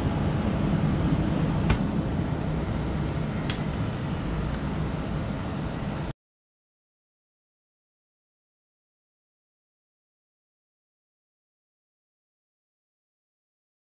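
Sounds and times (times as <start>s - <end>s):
low rumbling background noise: 0.0s - 6.2s.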